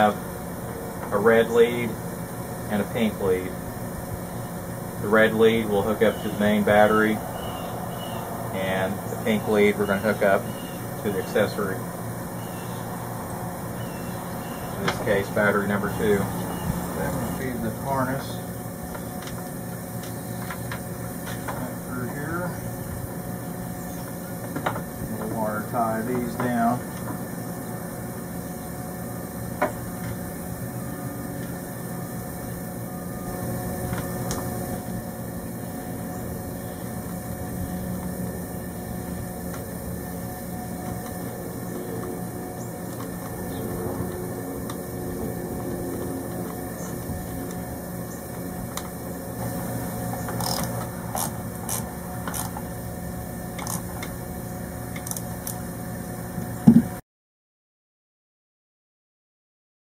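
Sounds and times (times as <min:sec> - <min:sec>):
low hum: 0:00.0 - 0:57.0
cable ties ratcheting: 0:50.3 - 0:52.6, 0:53.6 - 0:54.1, 0:55.0 - 0:55.6.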